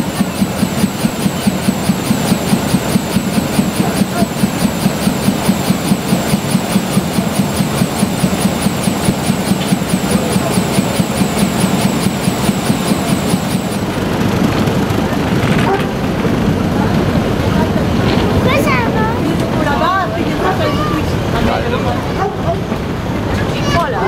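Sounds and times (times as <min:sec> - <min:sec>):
diesel locomotive engine idling: 0:00.0 - 0:24.0.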